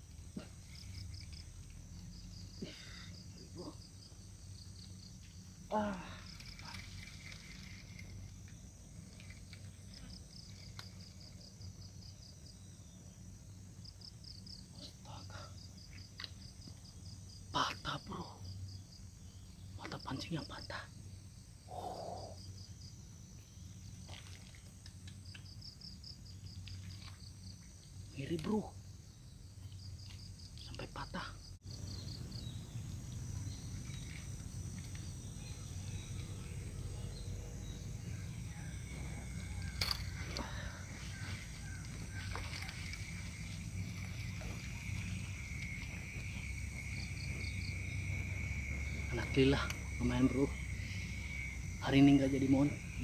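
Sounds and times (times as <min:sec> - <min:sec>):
insect chirping: 0:00.0 - 0:53.0
low rumble: 0:31.9 - 0:51.8.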